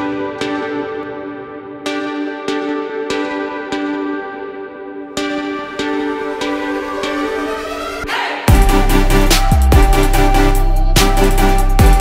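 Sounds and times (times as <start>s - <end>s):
held synth chords: 0.0s - 12.0s
sharp electronic beats: 6.1s - 12.0s.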